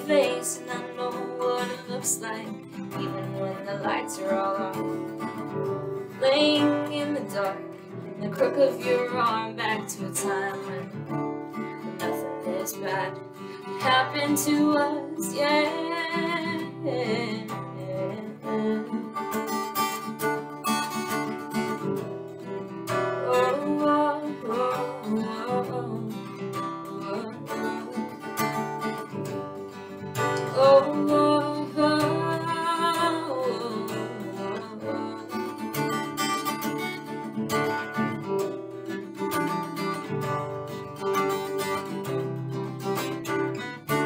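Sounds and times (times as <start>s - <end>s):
woman's wordless singing: 0.0s - 5.0s, 6.2s - 11.0s, 12.0s - 19.2s, 23.2s - 28.2s, 30.4s - 35.6s
acoustic guitar strumming: 0.0s - 44.0s.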